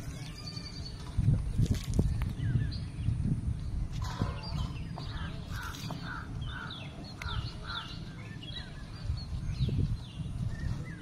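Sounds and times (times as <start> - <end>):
small birds chirping: 0.0 - 11.0
crow cawing: 5.2 - 8.0.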